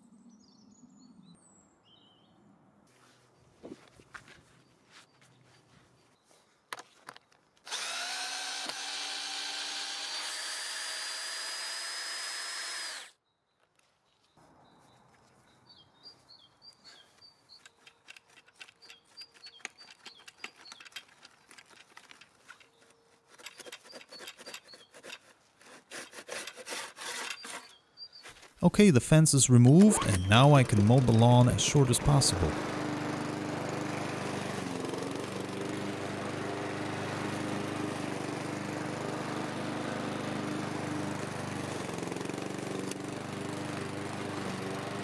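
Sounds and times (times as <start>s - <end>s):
cordless drill spinning: 7.6s - 13.2s, 26.4s - 27.8s.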